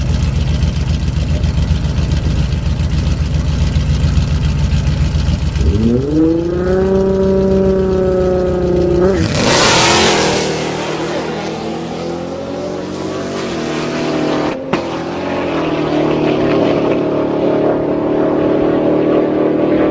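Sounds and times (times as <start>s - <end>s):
car engine revving and accelerating: 5.5s - 19.9s.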